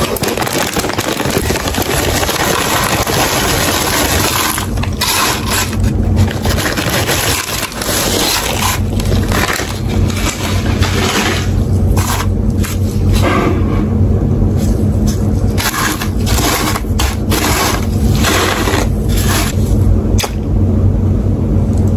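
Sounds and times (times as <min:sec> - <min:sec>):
potato chips pouring onto wooden tray: 0:00.0 - 0:11.6
foil bag crinkling: 0:00.0 - 0:13.2, 0:15.0 - 0:19.8.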